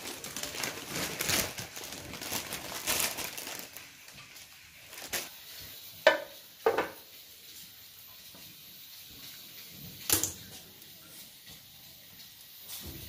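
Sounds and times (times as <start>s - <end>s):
knock: 6.1s - 7.0s.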